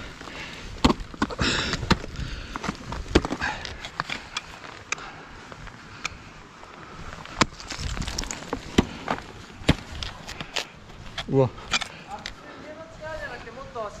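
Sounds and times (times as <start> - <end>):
ice crunching and scraping: 0.0 - 5.0, 7.1 - 12.5.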